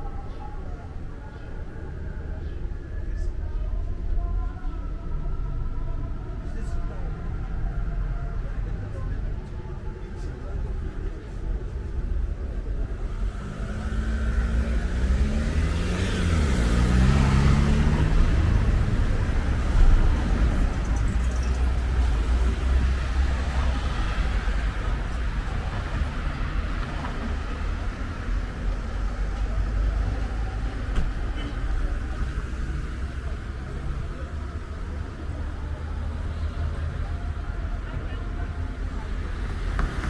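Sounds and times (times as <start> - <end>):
cars passing: 8.6 - 40.0.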